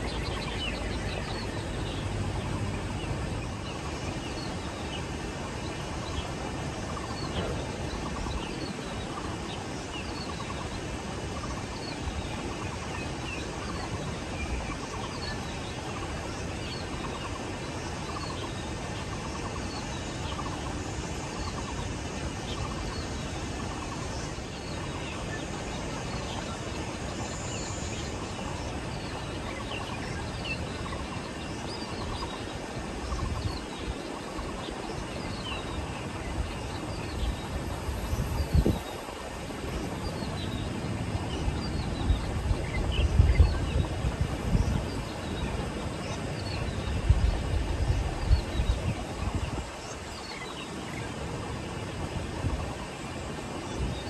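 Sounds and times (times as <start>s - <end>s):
birds chirping: 0.0s - 54.0s
steady outdoor hiss: 0.0s - 54.0s
wind buffeting microphone: 28.4s - 54.0s.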